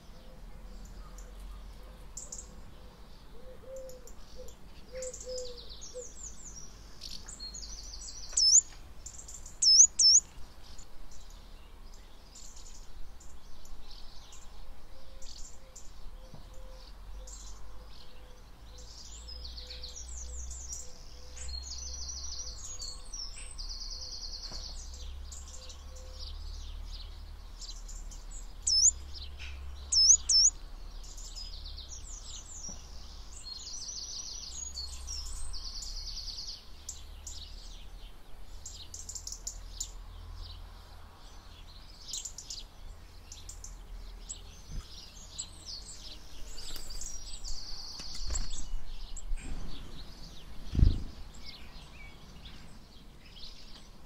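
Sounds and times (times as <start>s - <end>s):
songbirds chirping and trilling: 0.0s - 54.0s
loud rising chirps: 30.0s - 30.5s.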